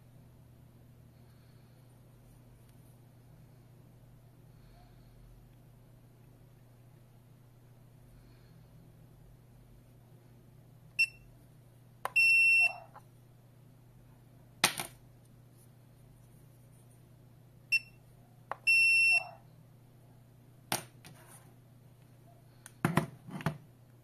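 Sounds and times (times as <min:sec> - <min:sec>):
keypad beeps: 0:12.1 - 0:12.9, 0:18.6 - 0:19.4.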